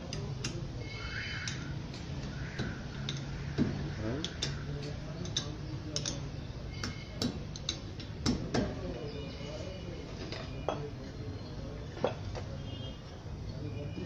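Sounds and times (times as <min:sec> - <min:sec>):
metallic clicks and taps from tool: 0:03.0 - 0:06.2, 0:06.8 - 0:08.7.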